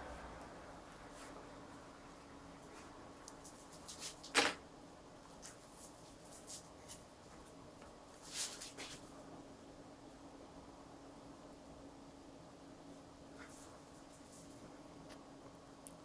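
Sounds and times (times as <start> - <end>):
low room hum: 0.0 - 16.0
brush strokes on paper: 5.5 - 9.1.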